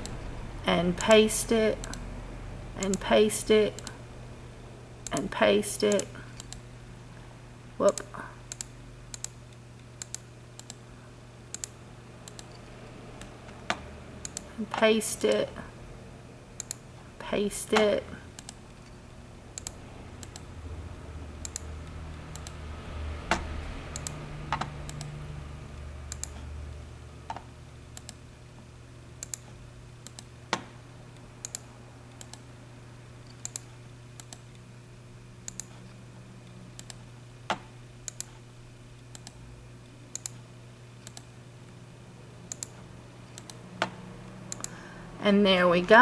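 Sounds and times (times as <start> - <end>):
steady low hum: 0.0 - 46.0
keyboard and mouse clicking: 7.9 - 10.8, 11.5 - 15.4, 19.6 - 20.4, 21.4 - 21.7, 22.3 - 22.6, 23.3 - 25.1, 26.1 - 26.4, 27.3 - 28.2, 29.2 - 30.7, 31.4 - 32.4, 33.2 - 34.6, 35.5 - 35.8, 36.8 - 38.4, 39.1 - 39.4, 40.1 - 40.4, 41.0 - 41.3, 42.5 - 44.8.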